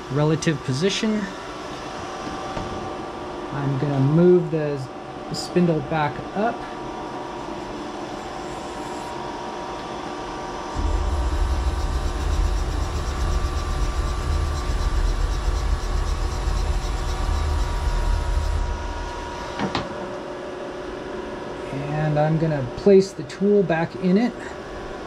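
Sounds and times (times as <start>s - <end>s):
machine background hum: 0.0s - 25.0s
servo drive low rumble: 10.8s - 19.6s.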